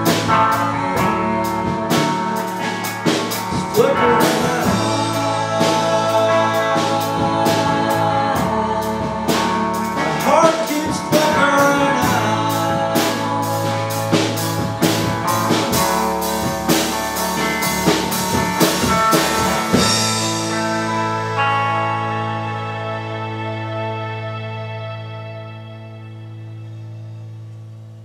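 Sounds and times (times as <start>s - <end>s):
rock band playing live: 0.0s - 28.0s
guitar chord ringing: 11.9s - 28.0s.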